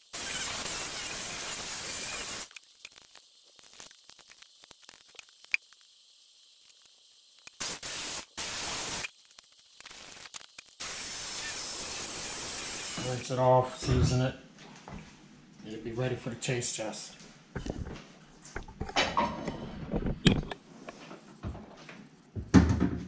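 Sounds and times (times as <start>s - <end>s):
tap water running: 10.5s - 13.3s.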